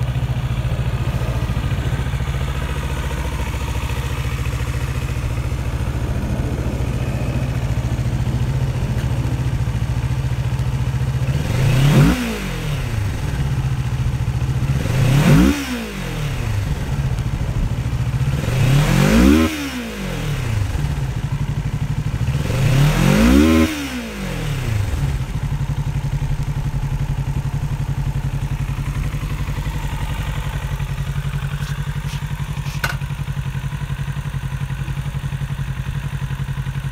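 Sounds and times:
motorcycle engine idling and revving: 0.0 - 36.9.

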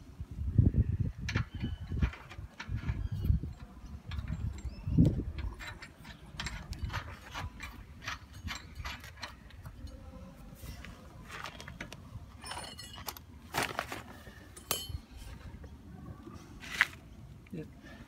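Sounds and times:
metal nuts and washers clinking: 1.3 - 10.2, 11.4 - 13.6, 14.4 - 15.4.

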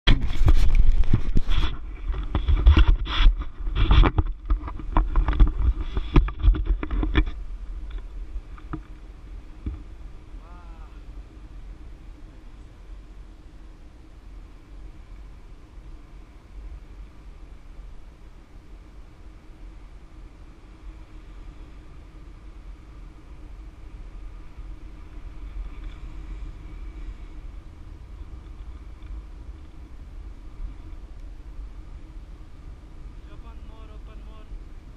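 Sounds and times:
wind buffeting microphone: 0.0 - 34.9
camera handling knocks and rubbing: 0.1 - 8.9
steady rush of air: 0.1 - 34.9.

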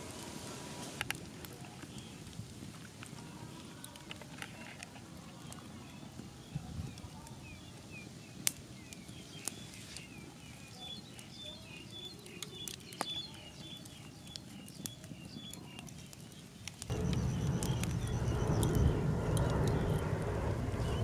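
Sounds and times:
small birds chirping: 4.5 - 21.0
low rushing noise: 16.9 - 21.0.

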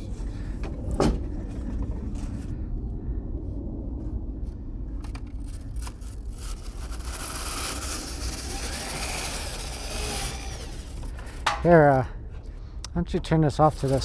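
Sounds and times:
low rumble: 0.0 - 14.0
brush scraping foil duct: 5.6 - 11.2, 13.6 - 14.0.

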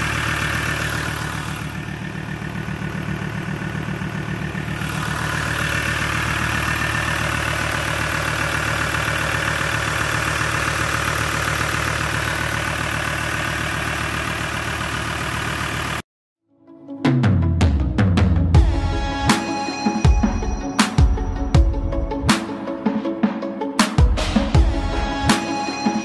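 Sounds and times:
diesel engine idling: 0.0 - 16.0.

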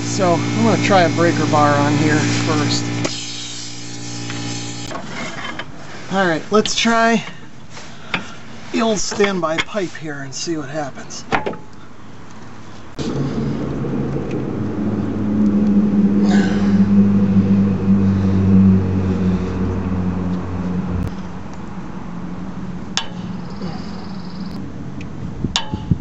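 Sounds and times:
motor humming: 0.0 - 4.9, 13.0 - 21.1.

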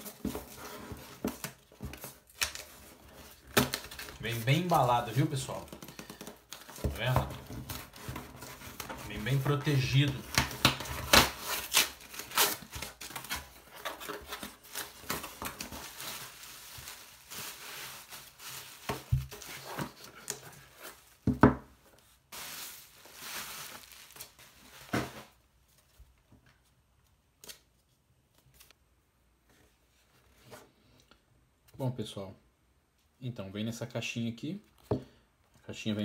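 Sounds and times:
cardboard packaging tearing: 0.0 - 21.1, 22.4 - 25.3
bubble wrap crinkling: 0.0 - 21.3, 21.9 - 26.0.

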